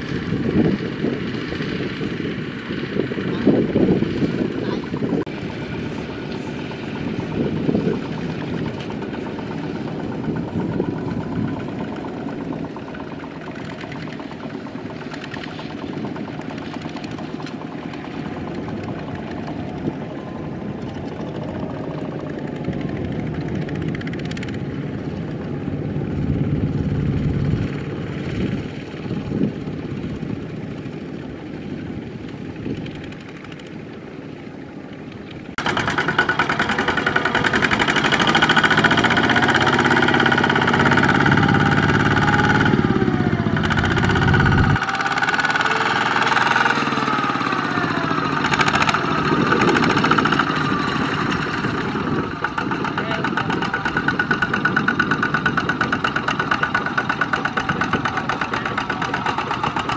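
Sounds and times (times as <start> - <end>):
diesel engine chugging: 0.0 - 59.9.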